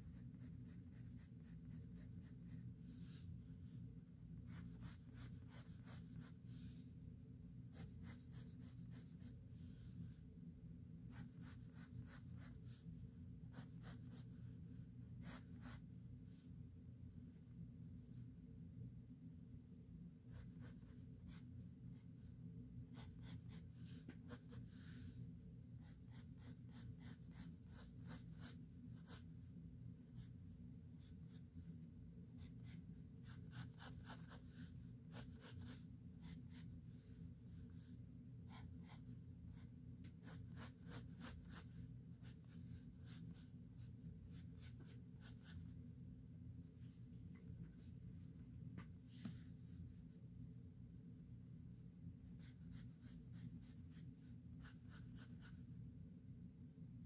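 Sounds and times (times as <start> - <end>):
pencil scratching on paper: 0.0 - 3.3, 4.4 - 6.8, 7.7 - 9.9, 11.1 - 12.8, 13.5 - 14.4, 15.2 - 15.8, 20.3 - 21.5, 22.9 - 25.1, 25.8 - 29.3, 32.4 - 37.9, 38.5 - 45.7, 52.4 - 55.6
low steady background hum: 0.0 - 57.0.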